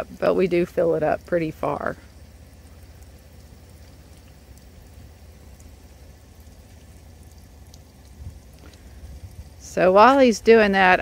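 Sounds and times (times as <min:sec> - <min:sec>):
low steady rumble: 0:00.0 - 0:11.0
water running from hose: 0:00.0 - 0:11.0.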